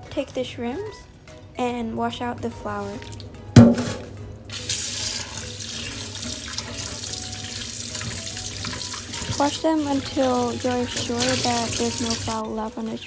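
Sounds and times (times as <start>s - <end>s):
sharp thump: 3.6s - 4.2s
hands rinsing shrimp: 4.5s - 12.6s
tap running into a bowl: 5.2s - 9.6s.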